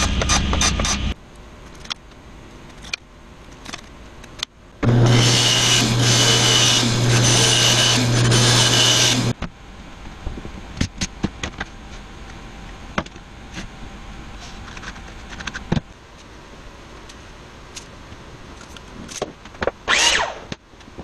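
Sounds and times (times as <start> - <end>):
band saw cutting wood: 4.8 - 9.3, 19.9 - 20.5
table saw running: 4.8 - 9.3, 19.9 - 20.4.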